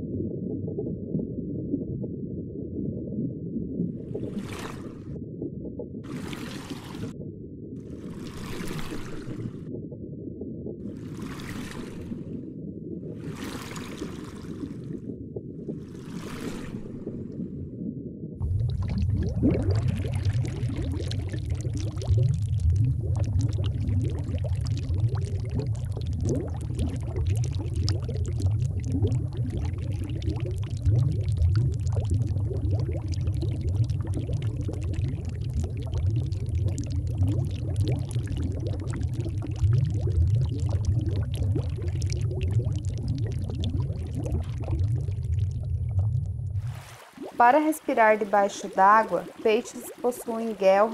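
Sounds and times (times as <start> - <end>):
aquarium water bubbling: 0.0 - 50.9
deep rumble: 14.7 - 47.3.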